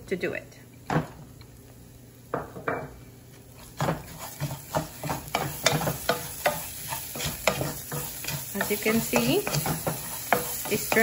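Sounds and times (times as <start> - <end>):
wooden spoon scraping pot: 3.6 - 11.0.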